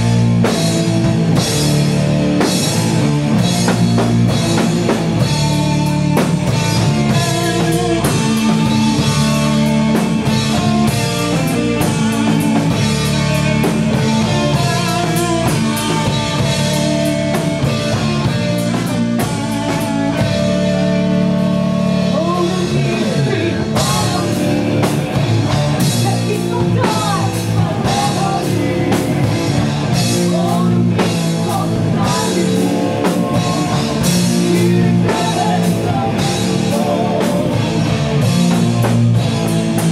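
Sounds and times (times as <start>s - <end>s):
bass guitar: 0.0s - 39.9s
distorted electric guitars: 0.0s - 39.9s
drum kit: 0.0s - 39.9s
person singing: 7.0s - 9.1s, 22.1s - 25.0s, 25.8s - 37.9s.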